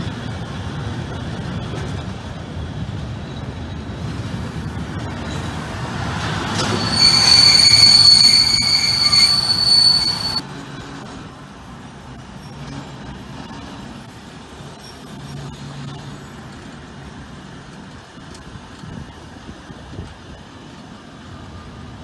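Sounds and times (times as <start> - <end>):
train rumbling past: 0.0 - 22.0
steel squealing on rails: 5.1 - 20.6.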